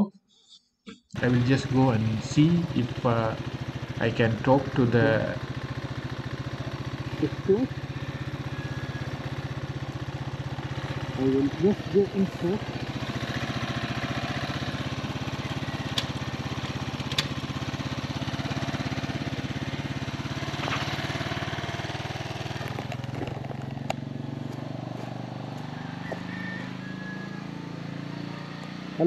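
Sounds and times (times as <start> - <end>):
motorcycle engine idling: 1.2 - 29.0
sharp clicks: 15.9 - 16.2, 17.0 - 17.4.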